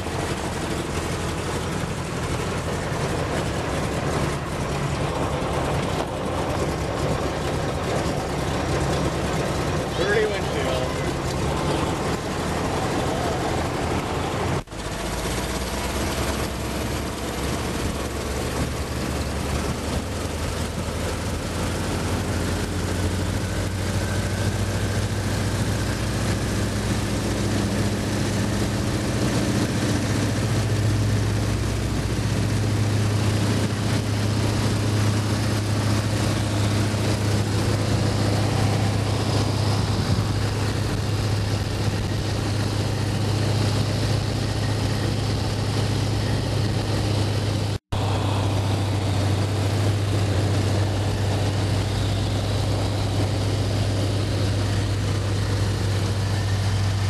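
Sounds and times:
propeller plane engine drone: 0:00.0 - 0:57.0
wind rush on microphone: 0:15.8 - 0:57.0.

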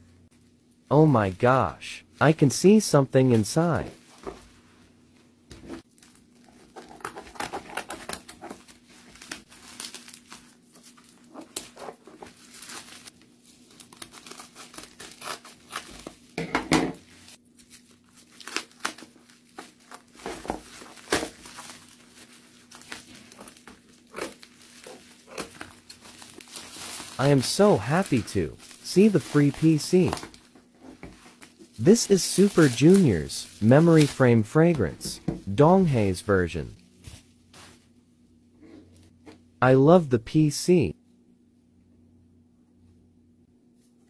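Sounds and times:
plastic packaging crinkling: 0:08.0 - 0:16.3, 0:17.1 - 0:30.6, 0:31.2 - 0:34.2.

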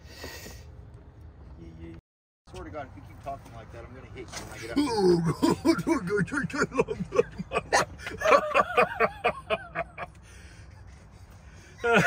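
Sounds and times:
person laughing: 0:04.6 - 0:10.1, 0:10.7 - 0:12.0.

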